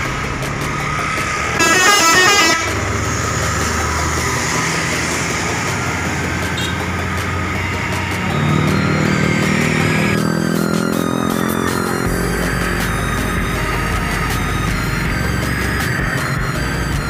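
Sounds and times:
bus engine running: 0.0s - 17.0s
bus horn playing notes: 1.5s - 5.1s, 6.0s - 7.1s.

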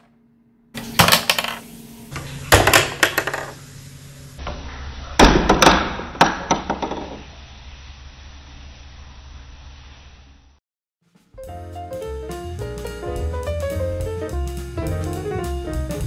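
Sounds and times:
ball clattering through plastic maze: 2.6s - 3.6s.

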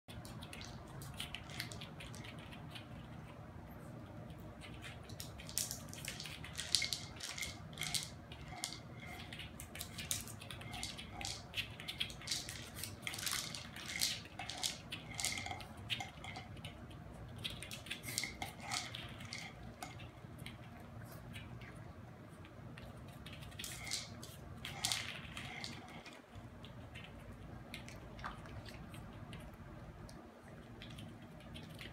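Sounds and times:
kibble rattling inside toy: 0.1s - 2.8s, 4.8s - 20.6s, 23.2s - 27.2s
plastic toy clattering on hard floor: 5.5s - 9.2s, 12.0s - 16.2s.

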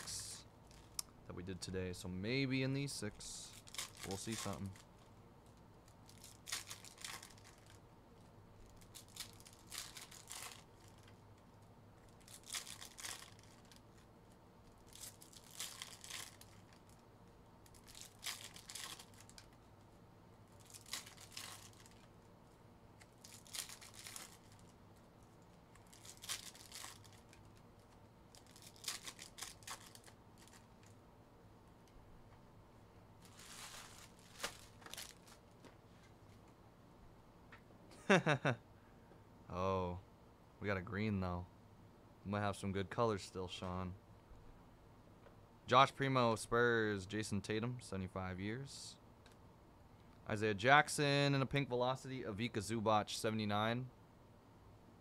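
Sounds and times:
foil wrappers tearing: 3.4s - 4.8s, 6.0s - 7.8s, 8.6s - 11.1s, 12.1s - 13.9s, 14.8s - 16.9s, 17.7s - 19.5s, 20.6s - 22.1s, 23.0s - 24.7s, 25.8s - 27.5s, 28.3s - 30.7s, 33.2s - 35.4s.

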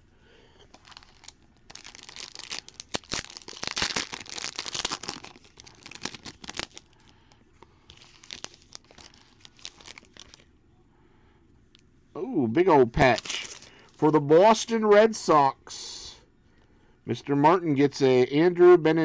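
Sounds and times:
foil wrapper tearing and crinkling: 0.8s - 7.0s, 7.9s - 10.5s, 12.9s - 13.8s.

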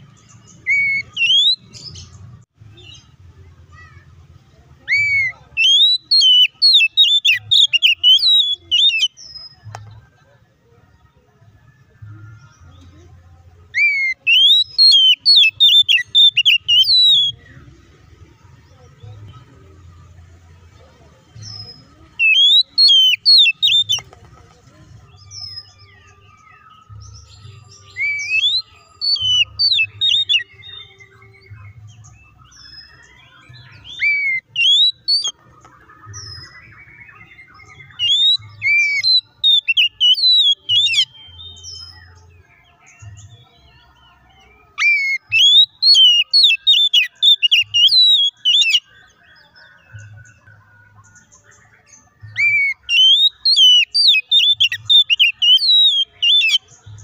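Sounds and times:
magpie-robin whistling and chattering: 0.1s - 3.1s, 4.8s - 9.6s, 13.7s - 17.4s, 21.4s - 24.2s, 26.6s - 42.2s, 44.4s - 48.9s, 51.6s - 57.0s.

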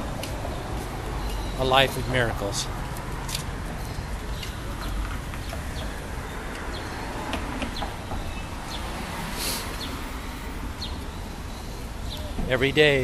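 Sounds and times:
traffic rumble: 0.0s - 13.0s
wind: 0.0s - 13.0s
bird chirps: 0.5s - 2.7s, 10.8s - 13.0s.

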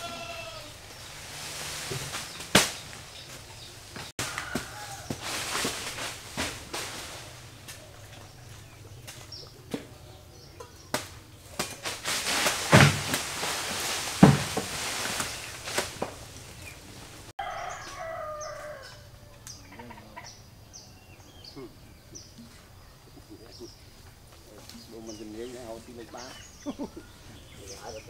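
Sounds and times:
small birds chirping: 0.0s - 13.2s, 14.8s - 28.0s
rustling palm fronds: 0.0s - 20.2s, 21.6s - 28.0s
knocks and cracks of cutting: 1.9s - 3.4s, 10.6s - 16.3s
rooster crowing: 4.2s - 5.6s, 17.4s - 19.9s.

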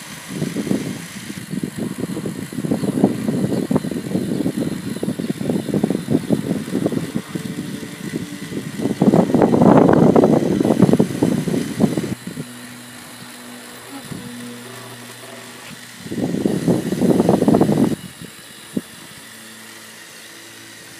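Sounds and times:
toy car motor and gears whirring: 0.0s - 20.9s.

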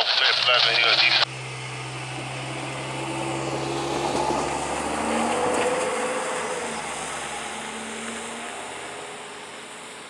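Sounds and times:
train wheels rumbling on rail: 2.0s - 6.5s.

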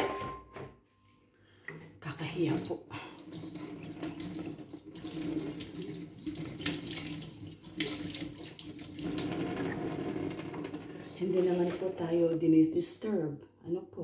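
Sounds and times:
tap water splashing into sink: 1.7s - 11.0s.

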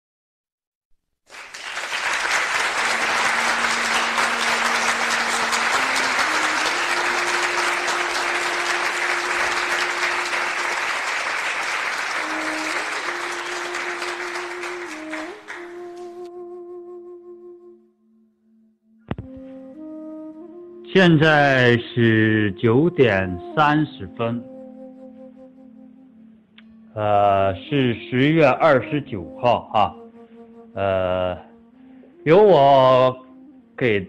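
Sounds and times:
applause: 1.3s - 16.2s
slow instrumental melody: 2.1s - 34.0s.

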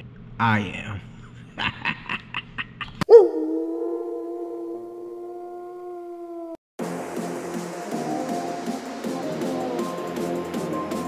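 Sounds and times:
wolf howl: 3.1s - 6.6s.

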